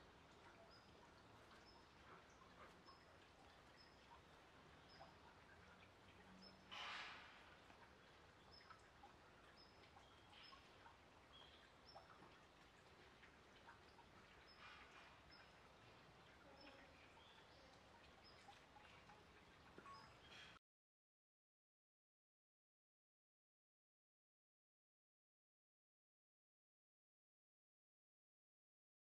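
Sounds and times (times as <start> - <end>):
small birds chirping: 0.1 - 6.7, 7.6 - 20.6.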